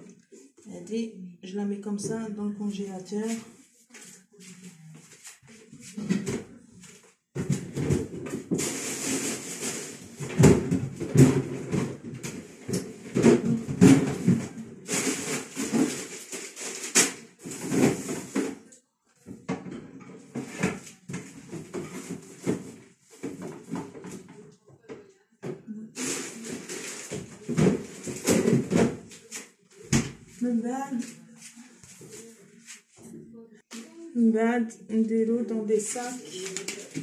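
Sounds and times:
kitchen rustling: 2.0s - 24.6s, 25.4s - 33.8s, 35.6s - 37.0s
kitchenware knocks and clatters: 7.3s - 18.6s, 19.2s - 24.4s, 26.5s - 29.2s.

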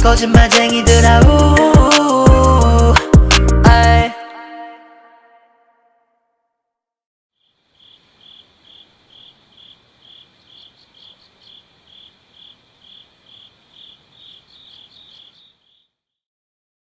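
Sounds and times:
music: 0.0s - 6.8s
insect chirping: 7.4s - 16.1s.

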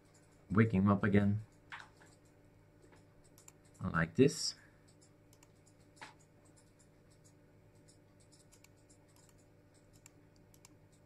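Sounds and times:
faint computer mouse clicks: 1.5s - 3.8s, 4.8s - 11.0s.

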